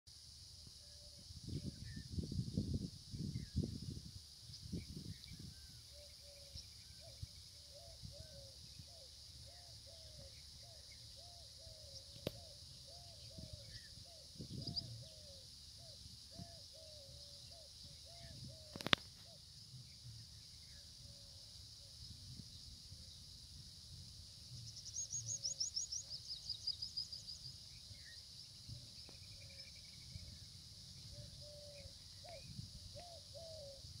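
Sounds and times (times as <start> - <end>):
sharp click: 12.2 - 12.4.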